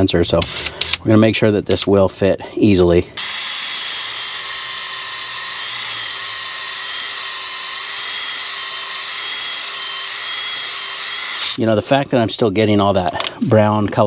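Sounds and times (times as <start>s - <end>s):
cordless drill whining: 3.2s - 11.6s.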